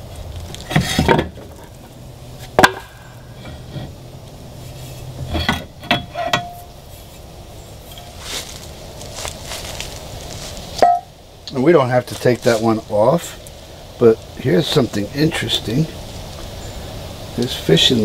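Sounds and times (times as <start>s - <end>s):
metal knocks and clunks: 0.6s - 1.9s, 5.1s - 6.7s, 10.8s - 11.1s.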